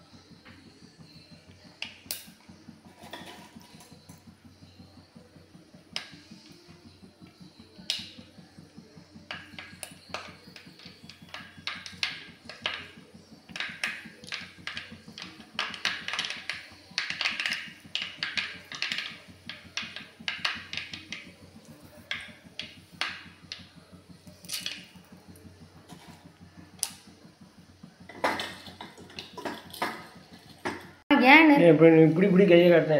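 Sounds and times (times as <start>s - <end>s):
low steady hum: 0.0s - 32.9s
seasoning crackling in hot oil: 13.5s - 25.0s.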